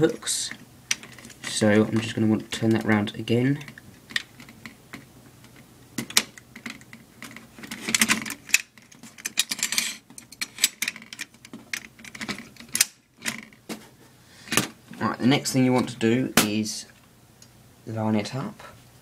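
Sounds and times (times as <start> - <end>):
metal bracket clicks and clacks: 5.5 - 13.6.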